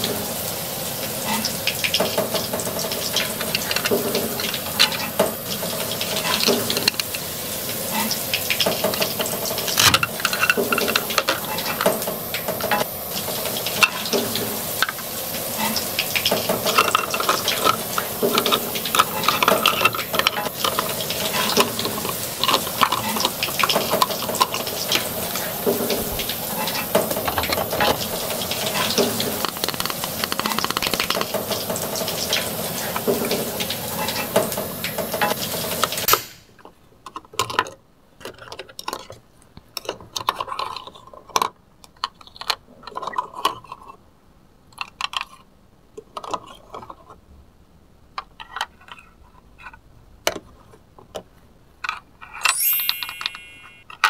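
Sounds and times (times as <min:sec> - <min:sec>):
toy cooktop frying sizzle: 0:00.0 - 0:36.6, 0:51.8 - 0:54.0
plastic toys clicking and tapping: 0:01.3 - 0:44.0, 0:44.6 - 0:47.2, 0:48.1 - 0:54.0.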